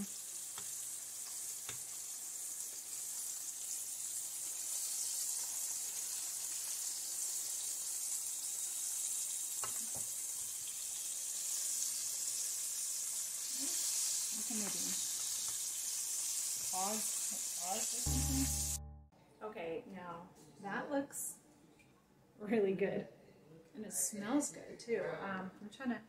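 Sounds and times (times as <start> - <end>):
fish frying in hot oil: 0.0 - 18.1.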